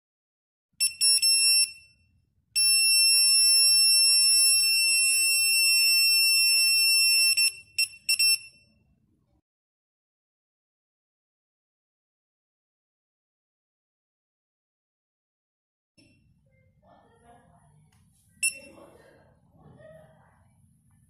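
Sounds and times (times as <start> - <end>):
signal detector alarm beeping: 0.8 - 8.8, 18.4 - 18.9.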